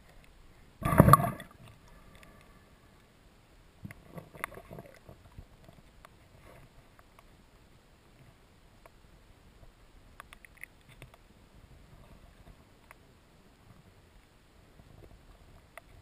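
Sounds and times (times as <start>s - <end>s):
muffled underwater rush: 0.8s - 2.9s
faint clicks and taps: 10.1s - 11.3s, 15.0s - 16.0s.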